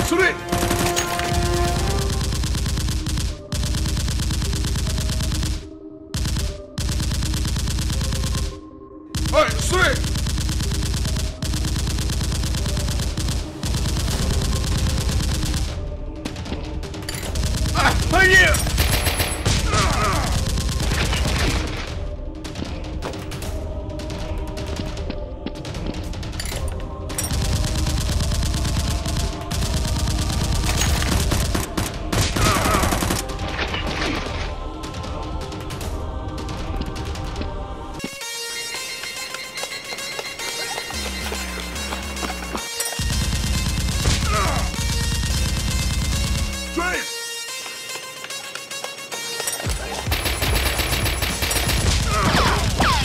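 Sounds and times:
background music: 0.0s - 53.0s
rapid automatic gunfire: 0.4s - 8.6s, 9.2s - 15.8s, 17.2s - 22.0s, 27.1s - 33.4s, 40.8s - 46.8s, 49.6s - 53.0s
automatic gunfire bursts: 27.3s - 33.3s, 41.6s - 46.8s, 50.0s - 53.0s.

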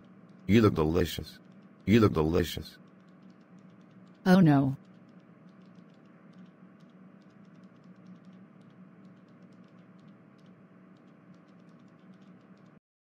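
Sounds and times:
faint hum and hiss: 0.0s - 12.8s.

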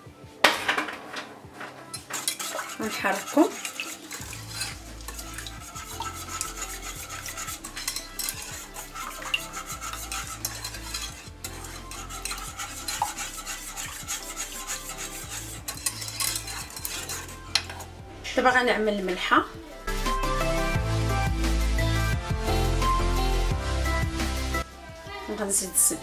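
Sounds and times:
whisk clicking and scraping pan: 1.6s - 18.0s.

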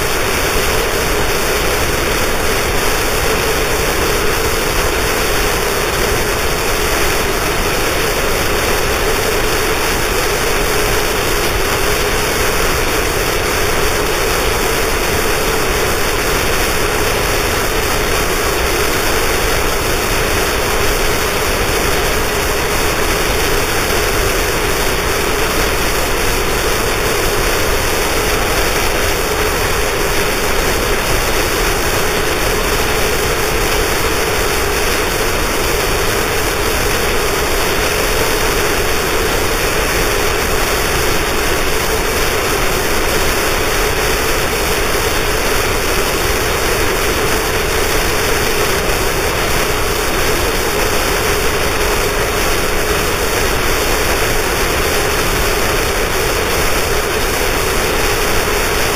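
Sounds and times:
harsh noise wall of distorted static: 0.0s - 58.9s.

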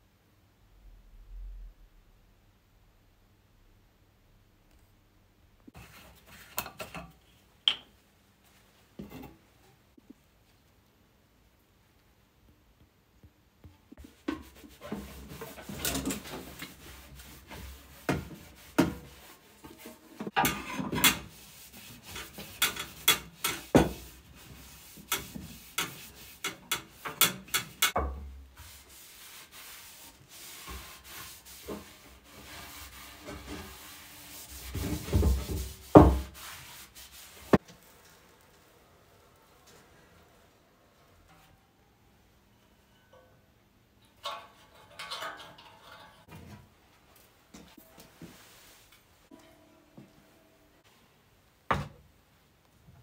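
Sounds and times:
rag wiping metal: 14.0s - 38.3s.

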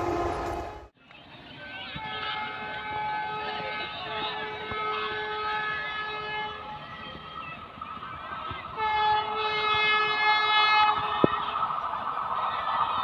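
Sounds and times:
train horn: 0.0s - 0.9s, 2.0s - 6.8s, 8.8s - 11.4s
train running noise: 0.0s - 0.9s.

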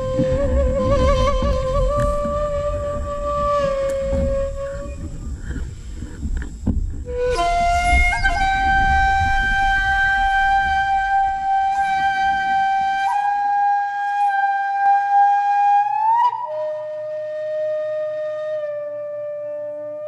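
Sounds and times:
flute long note: 0.0s - 5.6s, 7.0s - 20.0s
low rumble: 0.0s - 13.4s.

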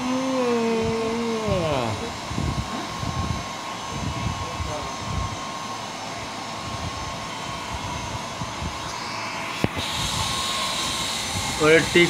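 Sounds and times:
dog dryer blowing air: 0.0s - 12.0s.

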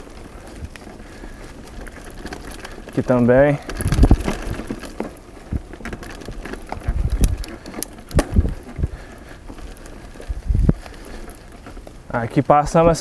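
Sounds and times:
bike clicks and rattles: 0.0s - 13.0s
bike thumps from jolts: 3.6s - 9.1s.

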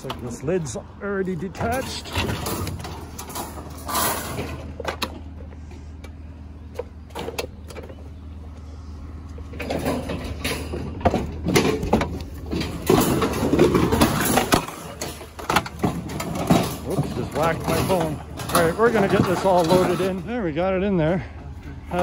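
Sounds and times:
washing machine clanking and scraping: 1.5s - 5.4s, 9.5s - 20.3s
low engine hum: 4.4s - 13.6s.

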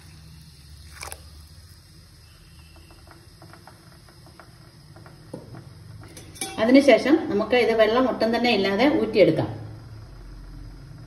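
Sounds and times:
faint ticks and pops from pot: 2.3s - 6.6s.

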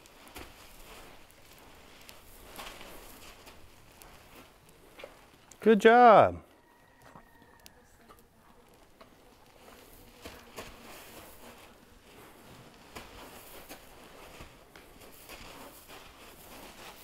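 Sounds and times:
footsteps on the ground: 0.0s - 6.2s.

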